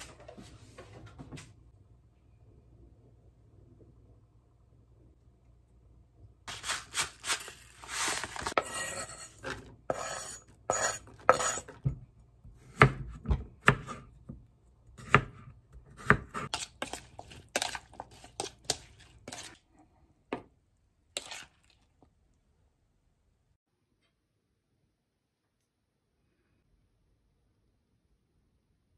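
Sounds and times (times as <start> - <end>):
knife cutting on wooden board: 6.5 - 11.8.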